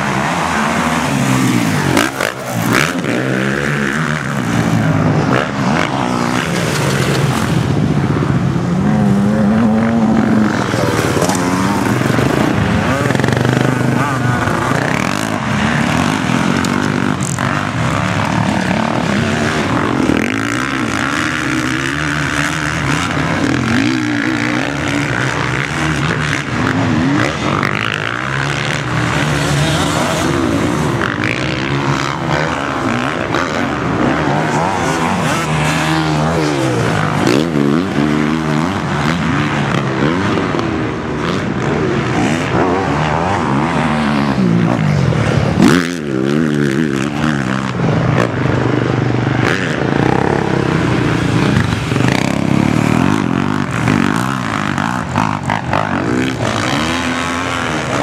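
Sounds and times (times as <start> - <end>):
motocross bike engines revving: 0.0 - 58.0.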